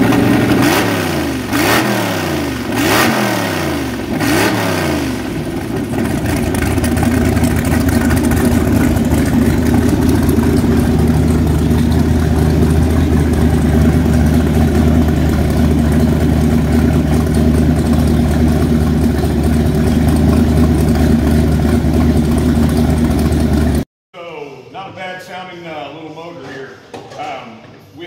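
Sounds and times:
water-cooled exhaust discharging: 0.0s - 23.8s
boat engine idling: 5.4s - 23.8s.

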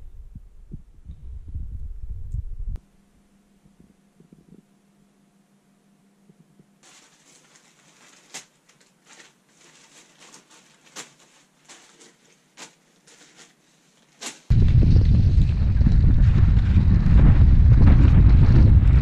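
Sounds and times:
wind noise on microphone: 0.0s - 2.8s, 14.5s - 19.0s
faint room hum: 0.0s - 14.8s
plastic packets crinkling: 6.8s - 14.5s.

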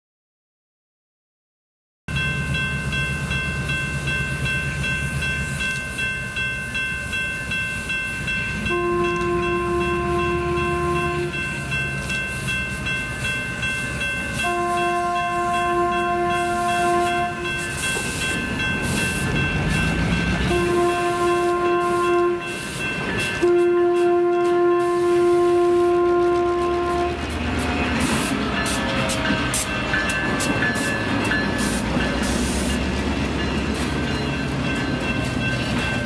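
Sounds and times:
diesel locomotive engine rumbling: 2.1s - 36.0s
locomotive horn blasts: 8.7s - 11.5s, 14.4s - 17.6s, 20.5s - 22.6s, 23.4s - 27.3s.

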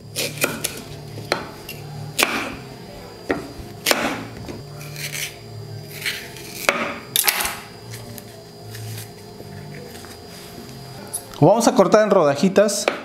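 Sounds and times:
knife striking wooden cutting board: 6.6s - 7.6s.

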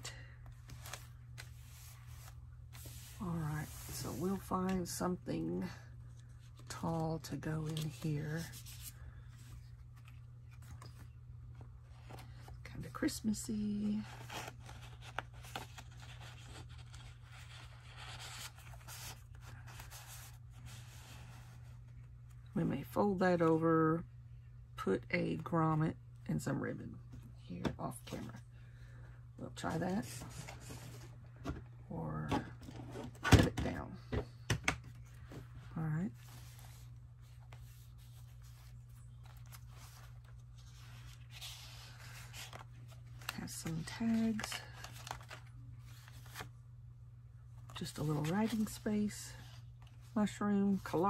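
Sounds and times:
paper and card rustling: 0.4s - 21.8s, 35.0s - 46.5s, 47.6s - 51.0s.

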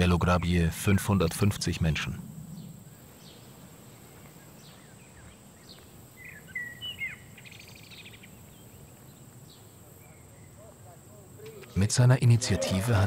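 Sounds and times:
faint outdoor background noise: 0.0s - 13.0s
small birds chirping: 0.0s - 13.0s
bird trill: 4.4s - 10.7s.

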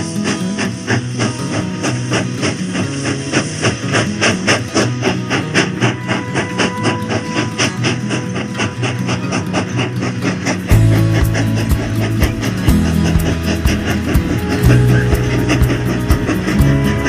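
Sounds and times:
fast beat music with bass line: 10.7s - 17.0s.

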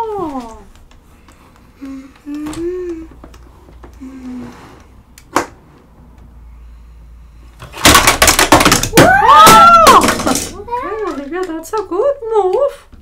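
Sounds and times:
plastic toy pieces clattering: 7.6s - 9.1s, 9.8s - 11.8s
plastic toy pieces knocking: 7.6s - 11.9s.

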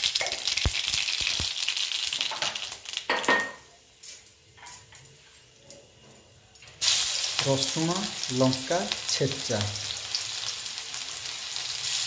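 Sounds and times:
seeds spluttering in hot oil: 0.0s - 3.2s, 6.8s - 12.0s.

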